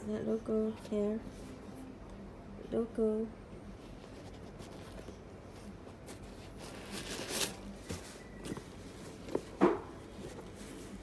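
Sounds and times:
rustling scrape: 0:03.8 - 0:11.0.

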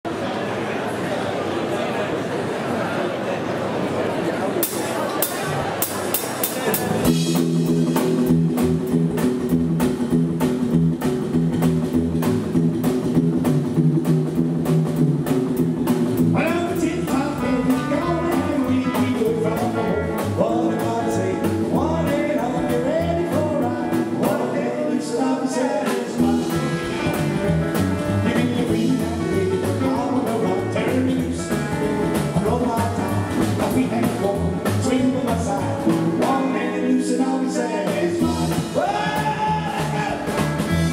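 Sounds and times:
drums: 0:04.5 - 0:40.9
acoustic rhythm guitar: 0:05.2 - 0:40.9
double bass: 0:05.3 - 0:40.9
electric lead guitar: 0:05.9 - 0:40.9
man singing lead vocal: 0:16.3 - 0:27.2, 0:28.1 - 0:40.9.

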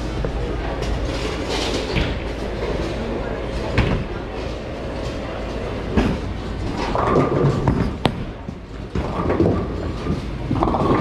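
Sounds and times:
bowling balls thudding and rolling: 0:03.7 - 0:11.0.

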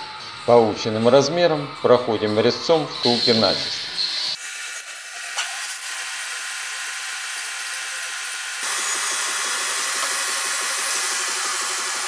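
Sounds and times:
boring cutter machining hiss: 0:03.0 - 0:12.0.

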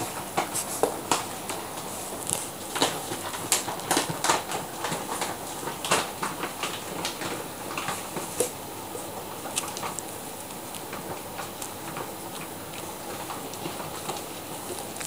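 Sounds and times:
dog claws clicking on tiles: 0:02.2 - 0:08.6, 0:09.4 - 0:15.0.

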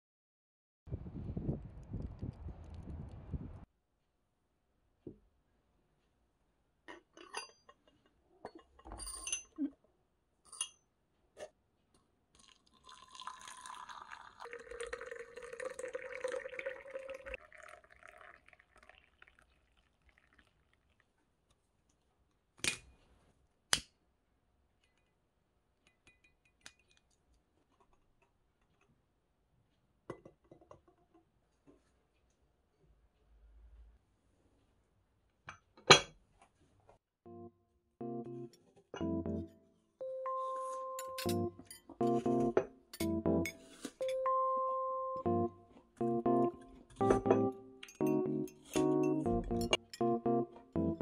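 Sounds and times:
water pouring into teapot: 0:12.4 - 0:21.3
glass teapot and lid clinking: 0:12.8 - 0:18.4, 0:41.0 - 0:44.2, 0:47.0 - 0:50.0.

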